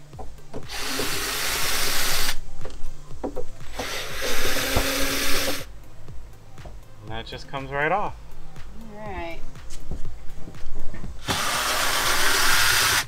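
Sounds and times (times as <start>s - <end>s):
cordless drill running: 0.7s - 2.4s, 3.7s - 5.7s, 11.2s - 13.0s.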